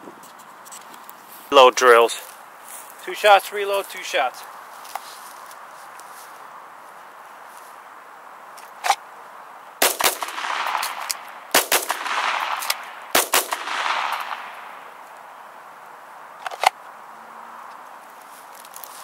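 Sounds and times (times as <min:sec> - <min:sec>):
handgun shots: 0:09.8 - 0:14.7
rolling echo: 0:09.8 - 0:15.1.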